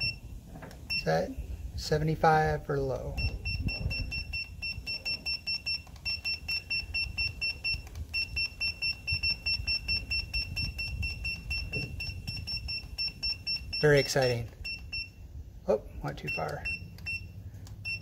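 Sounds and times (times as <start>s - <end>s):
short high electronic beeps: 3.2s - 15.2s.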